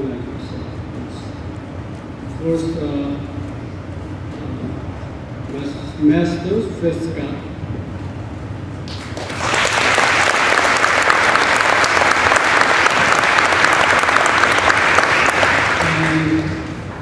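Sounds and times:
audience applause: 8.9 - 16.7.

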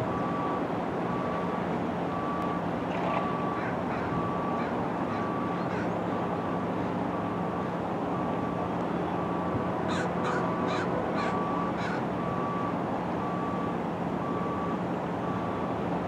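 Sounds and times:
electronic warning beeps: 0.1 - 4.6, 5.2 - 6.3.

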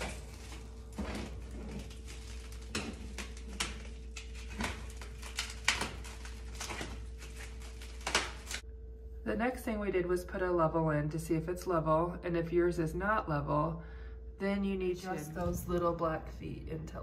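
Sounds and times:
plastic wrap crinkling: 0.0 - 8.6.

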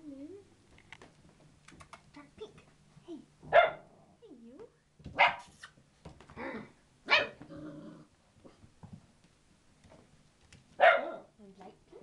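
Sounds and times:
puppy barks: 3.5 - 3.8, 5.2 - 5.6, 7.1 - 7.4, 10.8 - 11.3.

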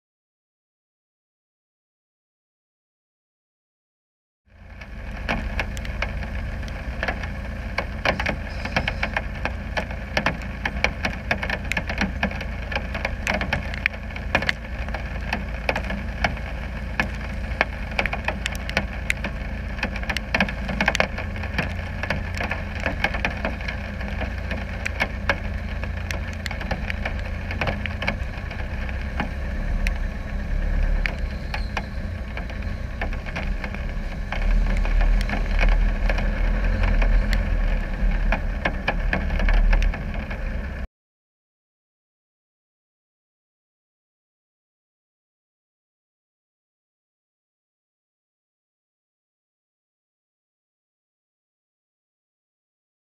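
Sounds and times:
diesel engine rumbling: 4.5 - 40.9
raindrops clicking on camera: 4.5 - 40.9.

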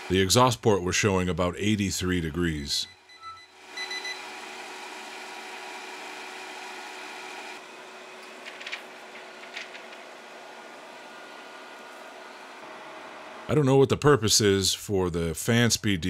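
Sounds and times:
air conditioner fan whirring: 3.5 - 14.7.

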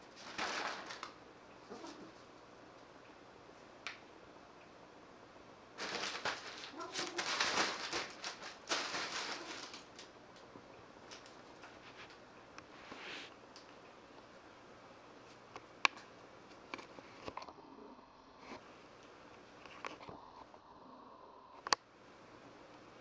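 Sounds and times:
fabric tunnel rustling: 0.0 - 2.2, 5.8 - 10.1.

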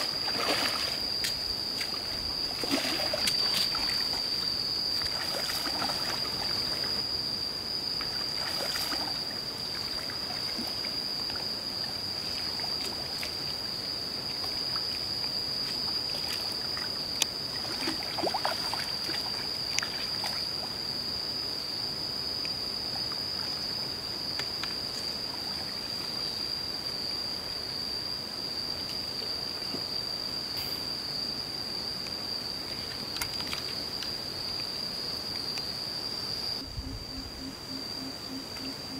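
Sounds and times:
insect drone: 0.0 - 38.9
fish splashing in water: 2.6 - 4.0.

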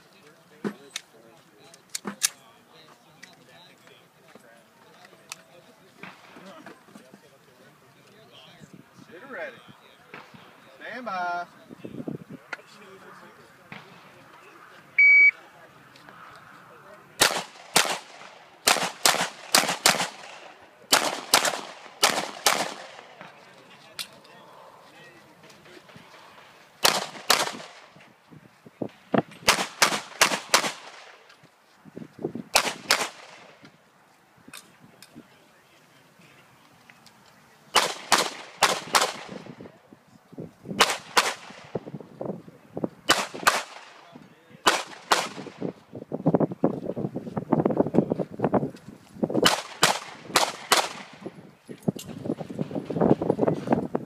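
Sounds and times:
pistol shots: 17.2 - 23.3, 26.8 - 27.9, 29.4 - 31.2, 32.6 - 33.5, 37.7 - 39.5, 40.8 - 41.7, 43.1 - 44.0, 44.6 - 45.6, 49.4 - 51.2.

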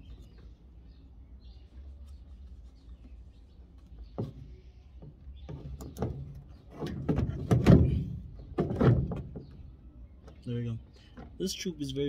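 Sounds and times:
plastic housing clunking and scraping: 4.0 - 10.4.

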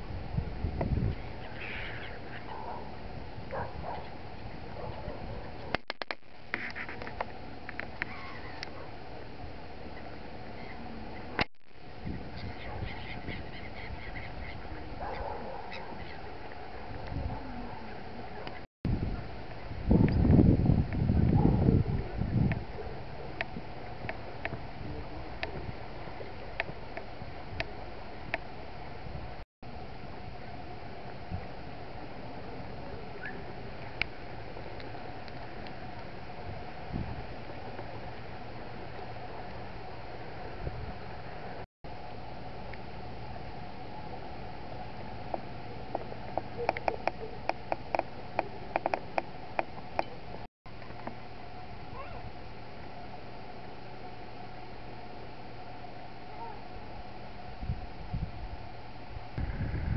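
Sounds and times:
wind buffeting microphone: 0.0 - 1.6, 11.9 - 18.3, 18.9 - 29.4, 36.3 - 37.7, 57.5 - 59.9
wind hiss over water: 0.0 - 59.9
waterbirds calling: 1.1 - 5.7, 7.8 - 9.0, 12.4 - 18.6.

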